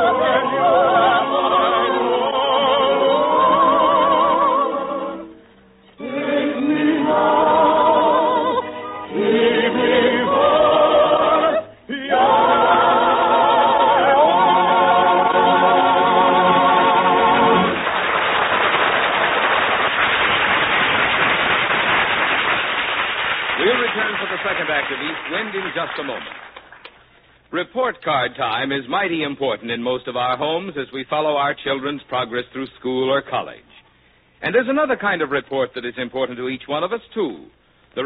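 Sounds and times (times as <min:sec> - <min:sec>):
operetta singing with choir: 0:00.0 - 0:17.9
audience applauding: 0:17.1 - 0:27.0.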